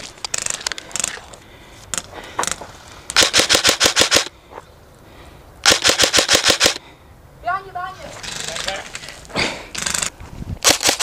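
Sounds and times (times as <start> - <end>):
airsoft rifle shots: 3.2 - 4.3, 5.6 - 6.8, 9.8 - 11.0.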